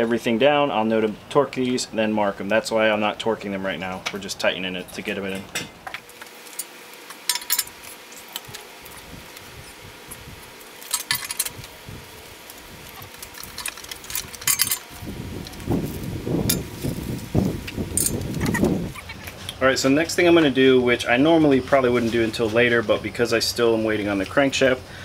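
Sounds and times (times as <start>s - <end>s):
metallic clicking and clinking: 6.5s - 8.6s, 10.8s - 11.7s, 13.0s - 14.9s.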